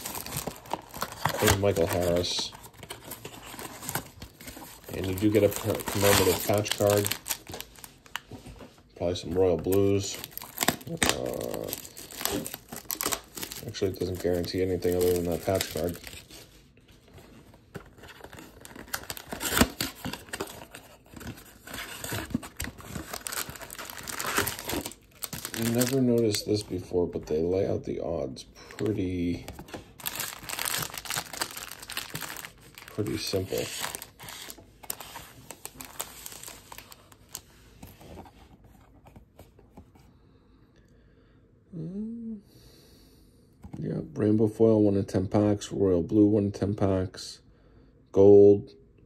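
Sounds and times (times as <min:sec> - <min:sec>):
cardboard box rustling and crinkling: 0:00.0 - 0:08.6, 0:09.6 - 0:26.6, 0:28.7 - 0:39.6.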